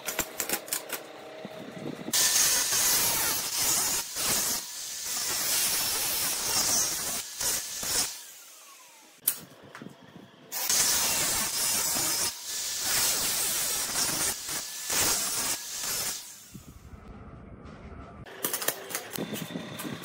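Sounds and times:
angle grinder grinding steel: 2.1s - 9.2s, 10.5s - 16.7s.

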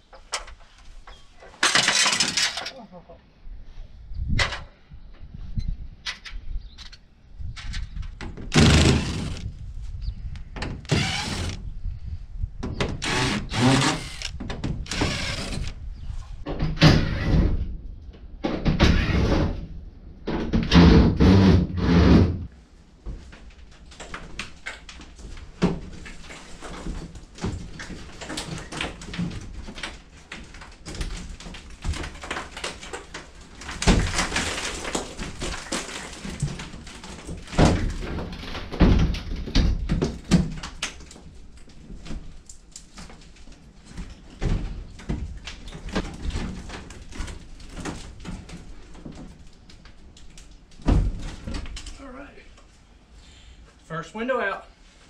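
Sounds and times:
window frame knocks and scrapes: 8.2s - 9.5s
cordless drill bursts: 8.6s - 9.4s, 10.9s - 11.6s, 13.0s - 14.3s, 14.9s - 15.7s.

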